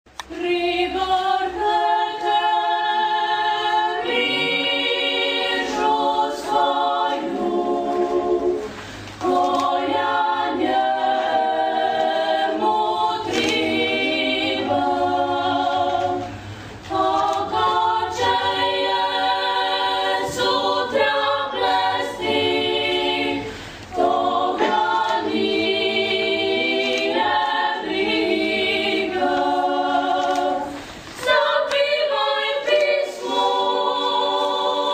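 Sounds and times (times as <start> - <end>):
choir singing in close harmony: 0.2 - 34.9.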